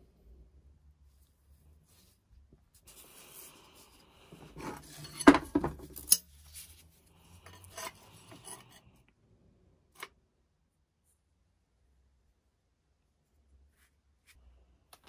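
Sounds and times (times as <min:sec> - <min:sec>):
metal tools clinking on workbench: 0:04.6 - 0:06.3.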